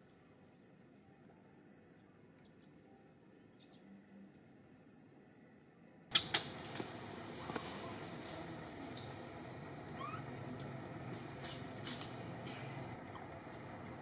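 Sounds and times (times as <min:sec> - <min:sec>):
steady background noise: 0:00.0 - 0:14.0
sharp clicks: 0:06.1 - 0:06.9.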